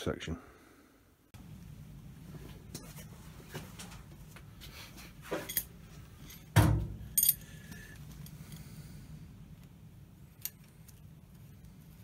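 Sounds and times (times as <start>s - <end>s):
metal tools clinking: 5.2s - 8.8s.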